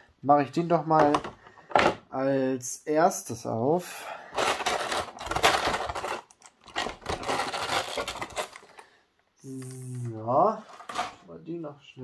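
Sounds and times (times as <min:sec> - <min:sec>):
plastic packaging crackling and clicking: 0:04.4 - 0:08.9.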